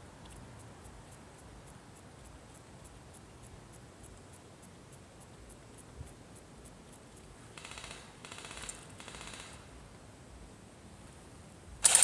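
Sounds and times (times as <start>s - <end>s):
faint high ticking: 0.0s - 9.6s
airsoft gun bursts: 7.6s - 9.7s.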